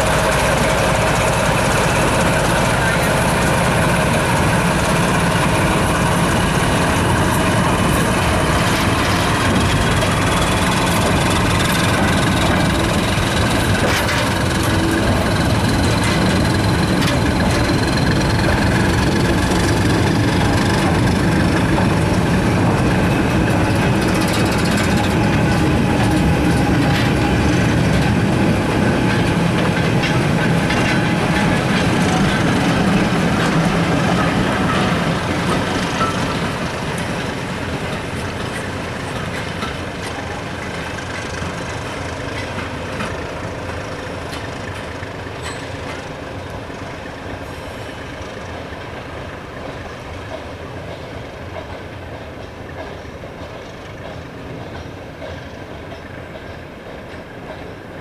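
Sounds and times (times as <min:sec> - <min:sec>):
diesel train engine drone: 0:00.0 - 0:58.0
rail noise: 0:00.0 - 0:58.0.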